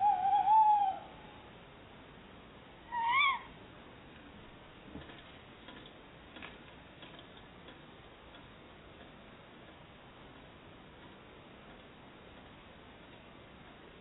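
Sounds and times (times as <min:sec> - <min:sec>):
owl call: 0:00.0 - 0:01.5, 0:02.9 - 0:03.6.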